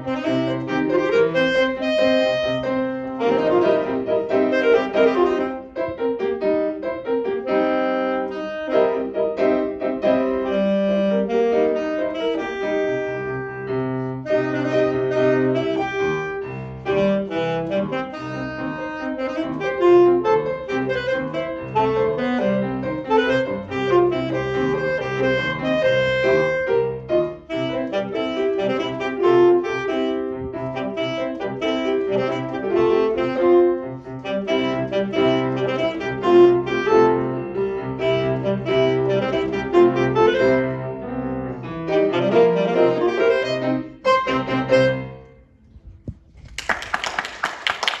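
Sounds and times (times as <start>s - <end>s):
alto saxophone melody: 0.0s - 45.9s
piano accompaniment: 0.0s - 48.0s
audience applause: 46.5s - 48.0s.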